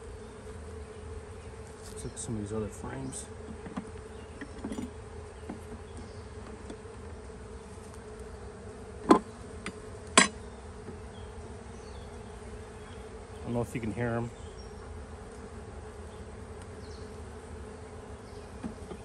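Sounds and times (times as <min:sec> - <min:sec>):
bees buzzing: 0:00.0 - 0:19.0
knocks on wooden hive frames: 0:09.0 - 0:11.0, 0:18.5 - 0:19.0.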